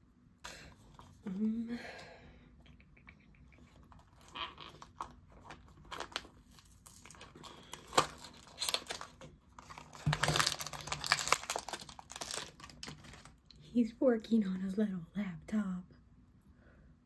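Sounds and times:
foil packet crinkling: 3.8 - 13.5.

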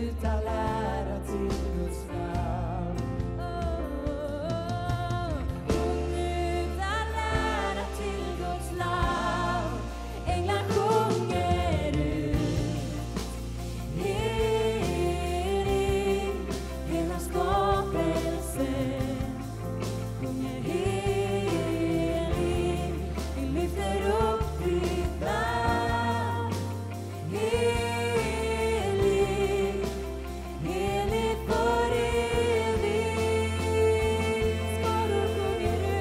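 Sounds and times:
live worship band: 0.0 - 36.0
person singing: 13.9 - 36.0.

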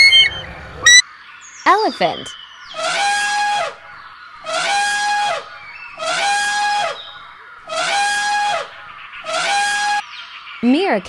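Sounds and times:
elephant trumpeting: 0.0 - 1.0, 2.8 - 10.0.

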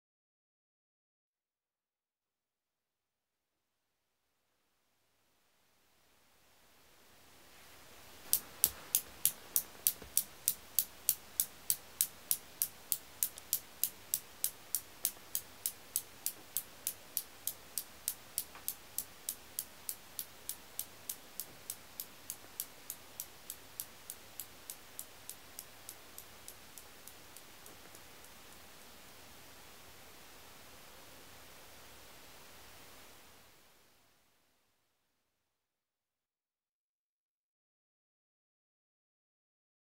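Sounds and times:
metal balls clicking: 8.2 - 29.0.

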